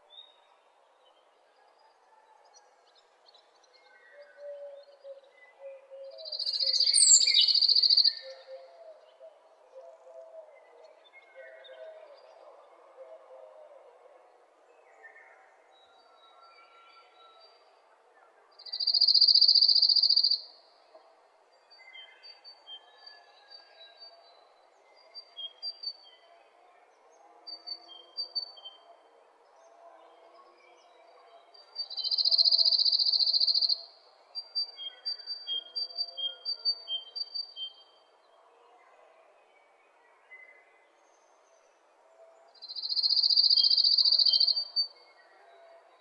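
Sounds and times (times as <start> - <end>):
bird high chirps: 6.3 - 8.4, 18.7 - 20.4, 42.7 - 44.9.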